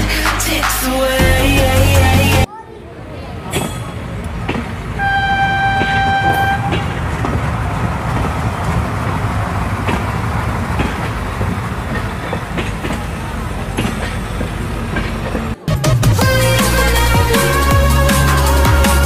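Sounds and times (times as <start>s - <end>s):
train rumbling: 3.4s - 19.0s
train horn: 5.0s - 7.0s.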